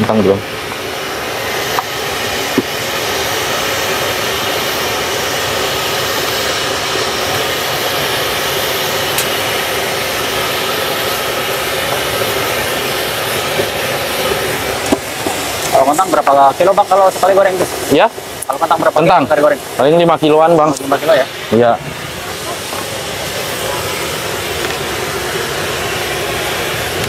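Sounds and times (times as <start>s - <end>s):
potatoes frying in hot oil: 0.0s - 23.1s.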